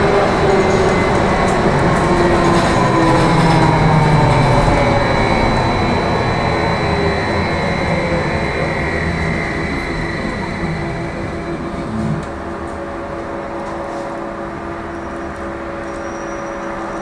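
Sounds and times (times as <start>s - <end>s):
bus road and running noise: 0.0s - 17.0s.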